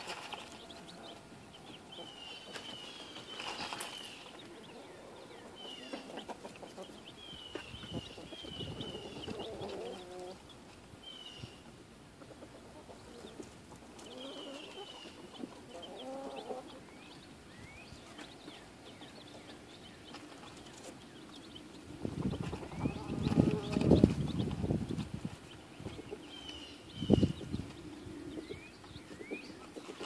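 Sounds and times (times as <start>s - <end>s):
chicks peeping: 0.0s - 30.0s.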